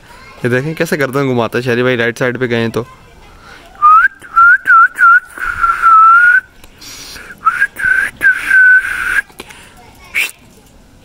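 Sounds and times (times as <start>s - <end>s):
person whistling: 3.8s - 6.5s, 7.4s - 9.2s.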